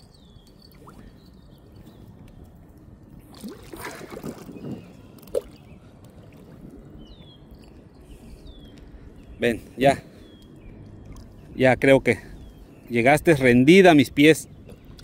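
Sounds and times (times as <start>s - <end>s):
short water plop: 3.3s - 5.6s
fish thrashing water splashing: 3.4s - 4.8s.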